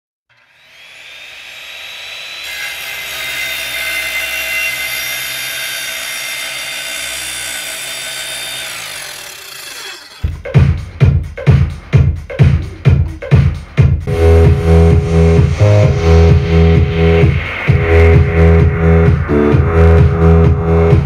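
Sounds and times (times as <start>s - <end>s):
electronic dance music: 10.2s - 21.0s
synthesized noisy drone: 14.1s - 21.0s.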